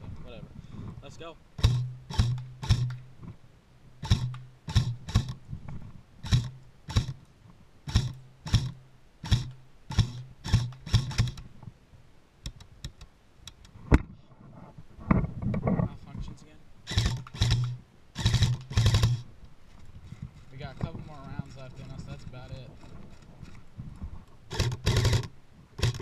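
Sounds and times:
airsoft rifle shots: 1.6s - 3.0s, 16.9s - 19.2s.

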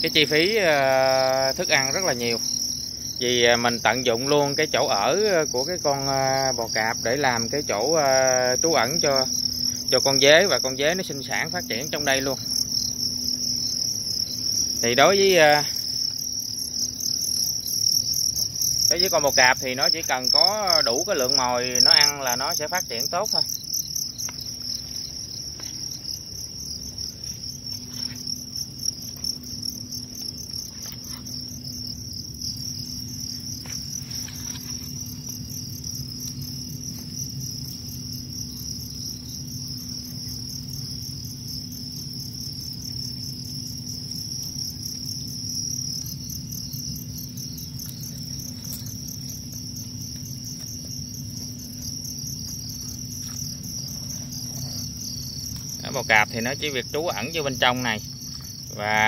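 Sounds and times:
crickets chirping: 0.0s - 59.0s
low steady hum: 6.5s - 55.8s.

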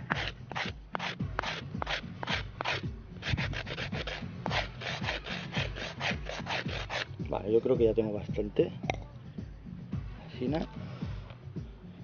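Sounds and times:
knife scraping wooden stick: 0.0s - 7.2s.

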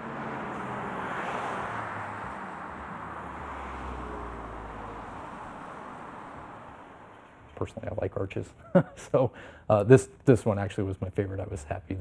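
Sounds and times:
low rumble of passing vehicle: 0.0s - 8.0s
street traffic passing: 0.0s - 12.0s.

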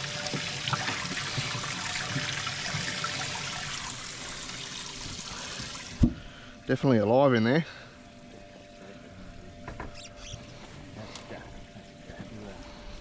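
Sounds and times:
water trickling and splashing: 0.0s - 6.3s.

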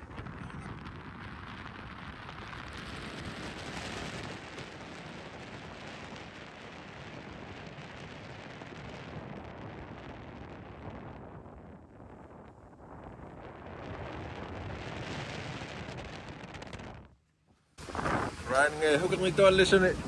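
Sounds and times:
wind on microphone: 0.0s - 17.2s, 17.8s - 20.0s
water rushing past boat: 17.8s - 20.0s.

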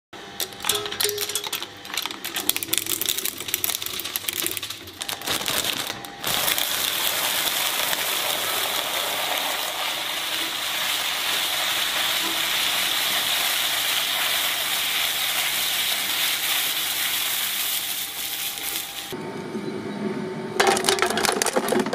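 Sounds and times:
shredder cracking plastic: 0.4s - 9.6s, 20.6s - 21.9s
shredder crunching snacks: 0.4s - 10.5s.

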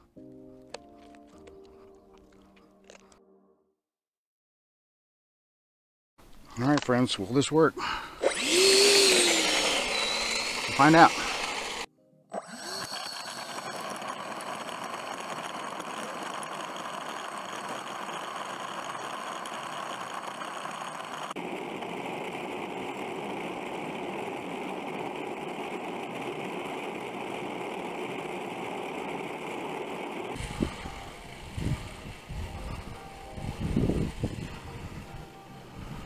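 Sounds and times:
electric ducted fan running: 8.2s - 11.9s, 12.5s - 36.0s
small wheels rolling on asphalt: 8.3s - 36.0s.

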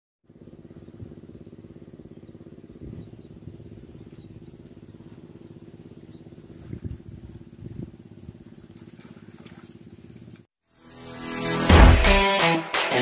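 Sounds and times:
small engine idling: 0.2s - 10.5s.

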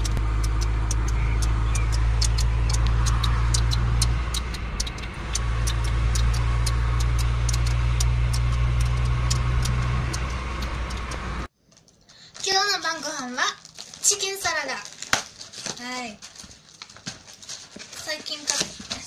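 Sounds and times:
light irregular clicks: 0.0s - 11.2s
car engine and road drone: 0.0s - 11.5s.

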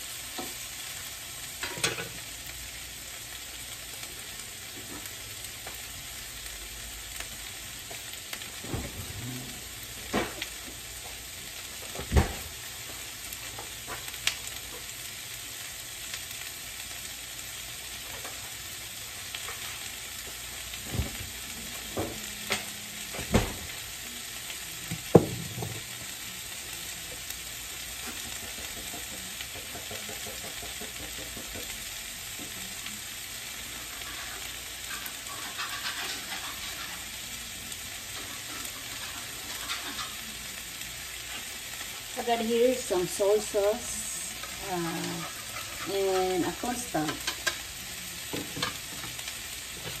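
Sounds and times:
food sizzling in a frying pan: 0.0s - 50.0s.

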